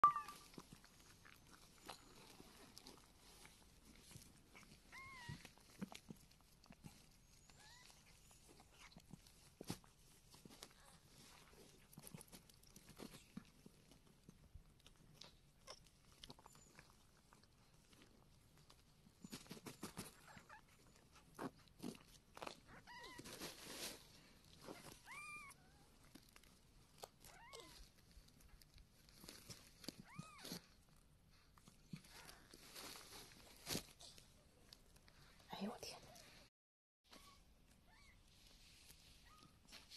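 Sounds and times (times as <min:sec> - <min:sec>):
faint clicks and rustling: 0:00.4 - 0:25.2.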